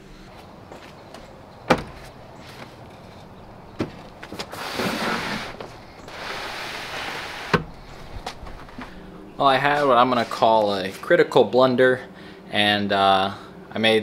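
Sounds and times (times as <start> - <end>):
box scraping over carpet: 4.4 - 7.6.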